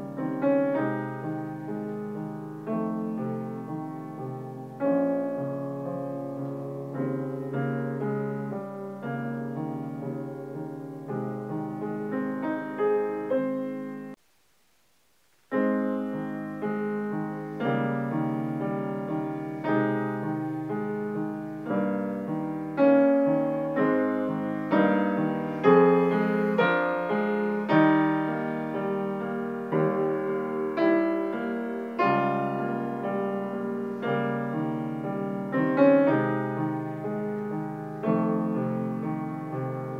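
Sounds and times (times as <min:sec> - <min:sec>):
grand piano playing: 0:00.0 - 0:14.2, 0:15.5 - 0:39.9.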